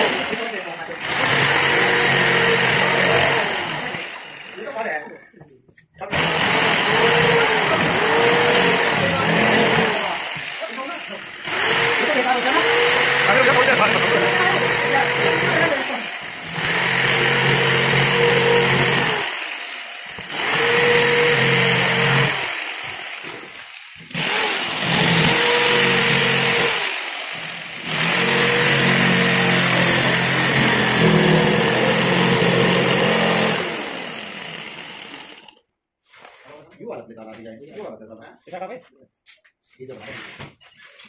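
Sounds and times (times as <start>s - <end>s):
electric jigsaw cutting board: 0.0s - 5.0s, 6.1s - 35.6s.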